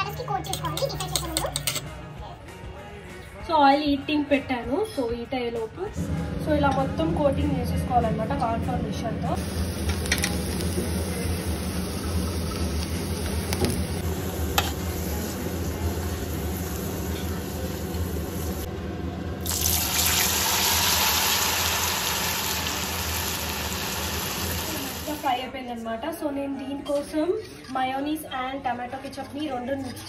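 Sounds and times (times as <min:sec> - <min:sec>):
potato sizzling in hot oil: 0:09.4 - 0:18.7, 0:19.4 - 0:25.2.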